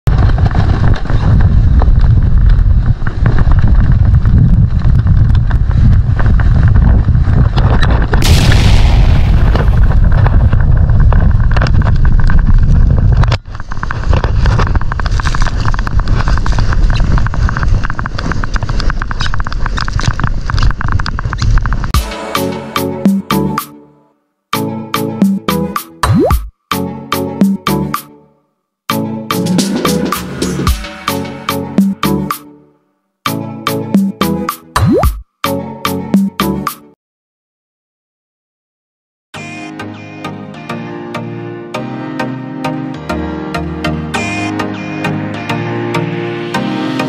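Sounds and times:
sled scraping over snow: 0:00.1 - 0:08.2, 0:10.2 - 0:21.9
wind buffeting microphone: 0:00.1 - 0:22.0.

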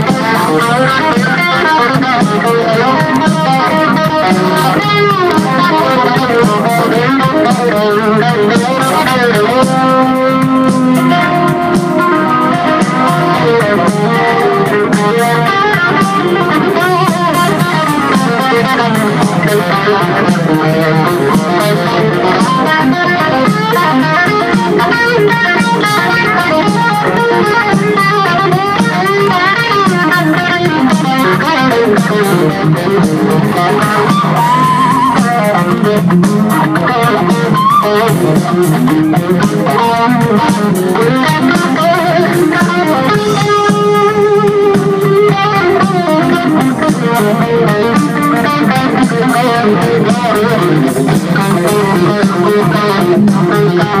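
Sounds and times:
electric guitar lead: 0:00.0 - 0:54.0
rock band playing: 0:00.0 - 0:54.0.

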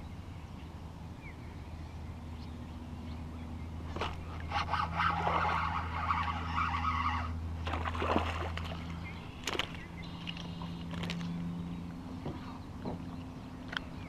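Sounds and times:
steady low hum: 0:00.0 - 0:14.0
fish splashing: 0:03.9 - 0:11.4.

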